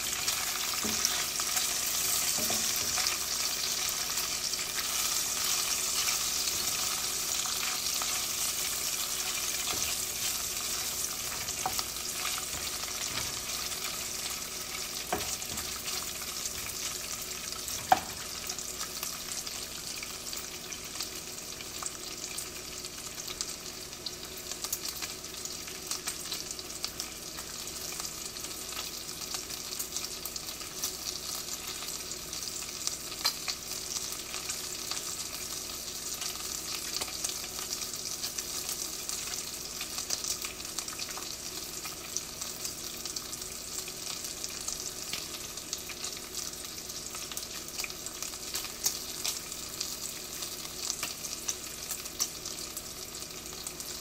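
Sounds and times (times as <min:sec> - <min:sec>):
bacon sizzling in a pan: 0:00.0 - 0:54.0.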